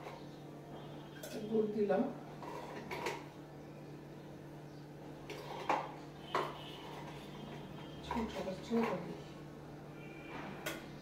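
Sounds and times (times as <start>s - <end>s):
metal kitchenware clinking: 1.2s - 1.6s, 5.3s - 9.2s.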